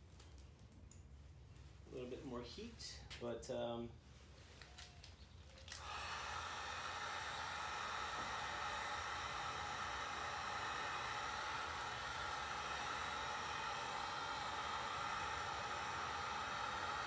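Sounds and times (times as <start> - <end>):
heat gun blowing: 5.6 - 17.0.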